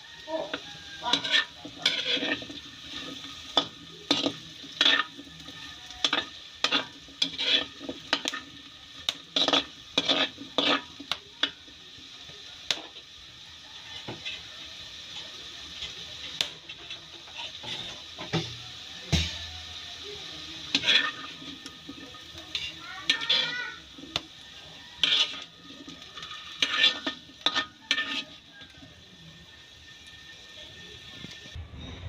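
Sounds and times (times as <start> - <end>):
metal spatula scraping wok: 0.0 - 11.6, 15.1 - 32.0
potatoes sizzling: 0.0 - 31.6.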